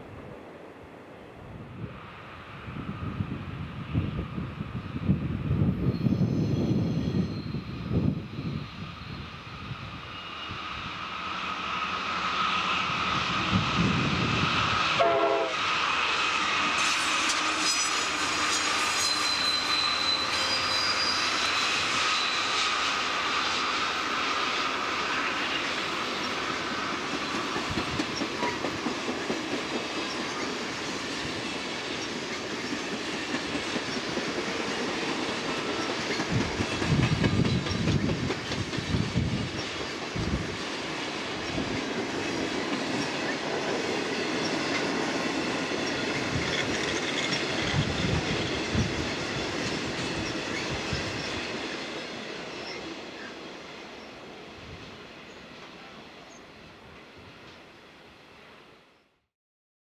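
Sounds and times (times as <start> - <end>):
wind on microphone: 1.5 - 11.0, 12.9 - 15.0, 36.1 - 40.6, 46.1 - 51.5
train wheels rolling on rails: 1.8 - 57.8
train horn: 14.9 - 15.8, 16.7 - 22.6
wheels squealing: 16.4 - 25.8.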